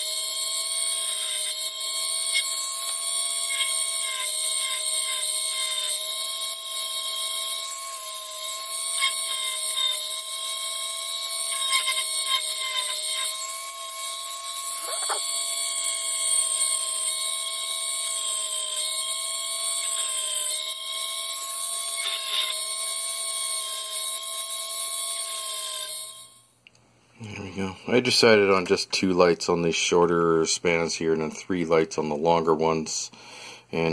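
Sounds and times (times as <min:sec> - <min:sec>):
rotary tool high whine: 0:00.0 - 0:26.6.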